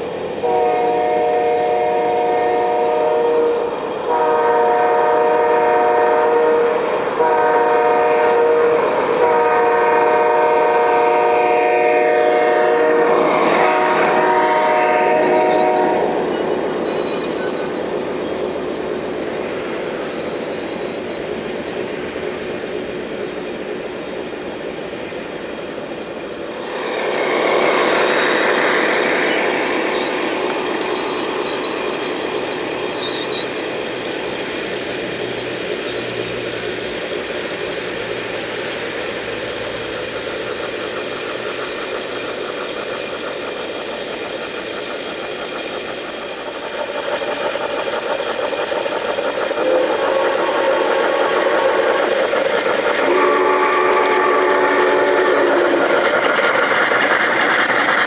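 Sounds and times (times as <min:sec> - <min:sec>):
model train cars rolling on track: 0:00.0 - 0:58.0
wheels squealing and squeaking: 0:13.2 - 0:23.0, 0:26.8 - 0:37.1, 0:41.4 - 0:53.0, 0:53.6 - 0:58.0.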